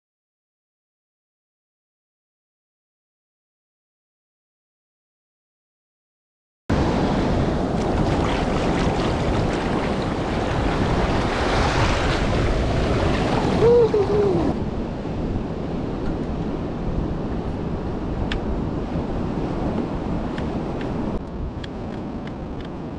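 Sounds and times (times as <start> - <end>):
ocean surf: 6.7 - 22.9
wind buffeting microphone: 6.7 - 22.9
wavering call: 13.5 - 14.6.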